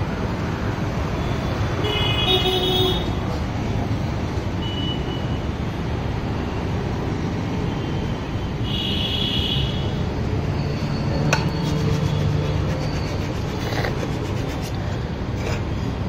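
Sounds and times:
road traffic rumble: 0.0s - 16.0s
vehicle horn beep: 4.6s - 5.4s.

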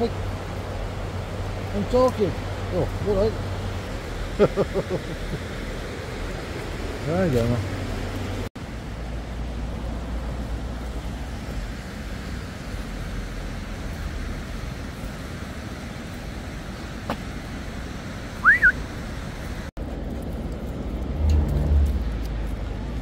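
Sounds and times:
outdoor rushing noise: 0.0s - 23.0s
bright rising whistle: 18.4s - 18.8s.

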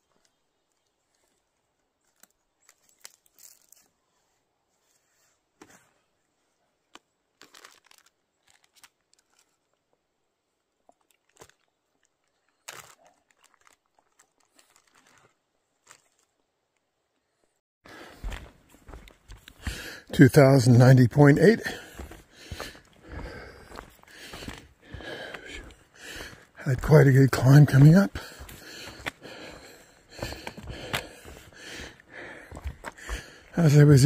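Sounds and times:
plastic bag crinkling: 7.4s - 9.6s, 11.1s - 16.3s.

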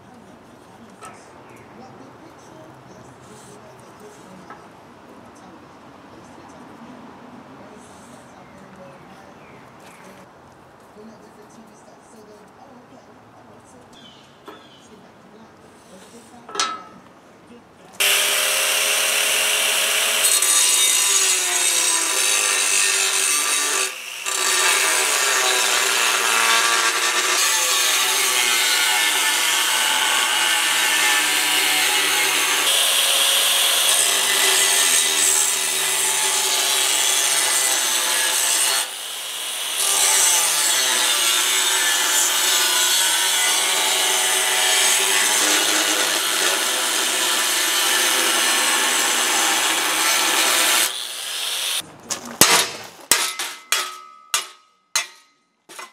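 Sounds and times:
angle grinder cutting steel: 18.0s - 51.8s.

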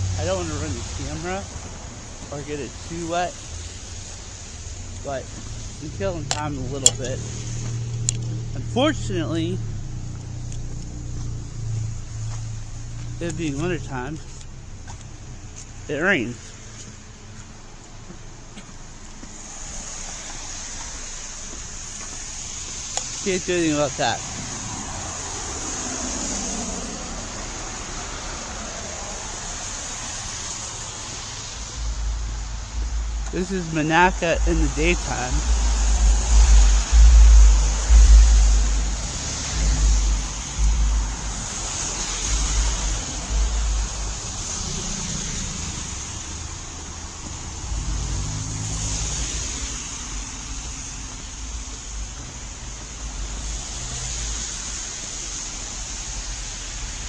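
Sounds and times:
car engine hum: 0.0s - 57.0s
tyres hissing on wet pavement: 0.0s - 57.0s
wind buffeting microphone: 31.6s - 44.7s.

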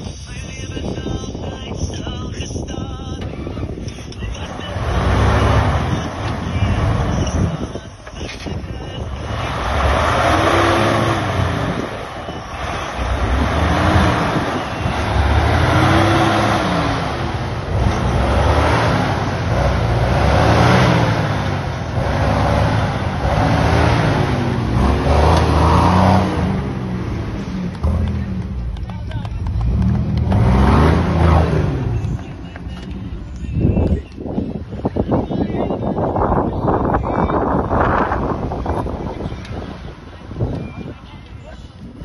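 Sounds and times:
engine revving under load: 4.4s - 7.6s, 9.2s - 33.1s.

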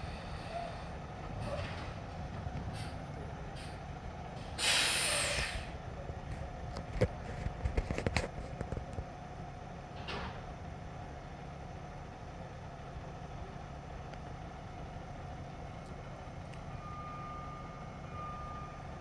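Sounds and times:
air brake hiss: 0.0s - 0.9s, 4.5s - 5.8s
garbage truck idling: 0.0s - 7.6s, 8.3s - 19.0s.

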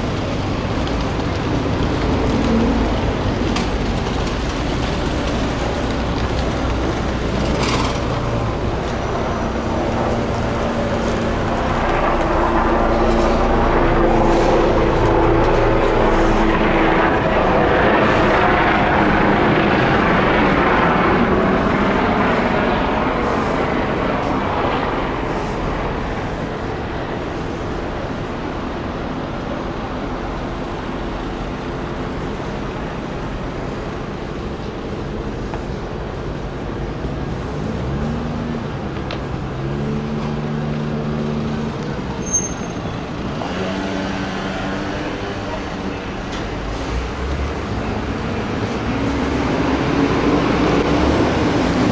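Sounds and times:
engine roaring: 0.0s - 51.9s
high squeal: 42.1s - 43.2s.

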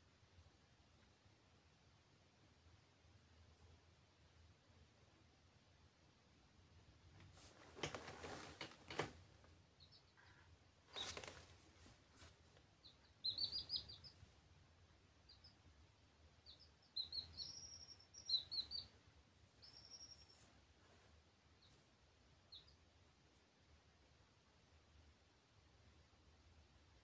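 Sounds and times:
chicks peeping: 9.7s - 14.4s, 15.2s - 15.7s, 16.3s - 20.5s, 21.6s - 22.9s.

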